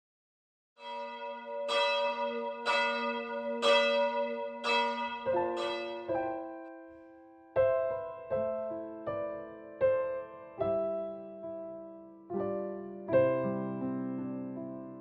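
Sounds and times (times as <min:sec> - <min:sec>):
church bell tolling: 0:00.8 - 0:06.8
low piano notes: 0:00.8 - 0:15.0.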